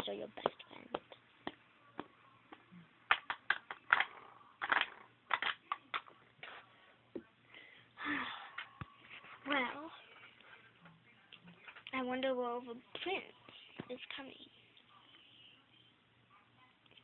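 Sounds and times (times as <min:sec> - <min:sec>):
plastic figurines clicking and tapping: 0:03.1 - 0:06.2.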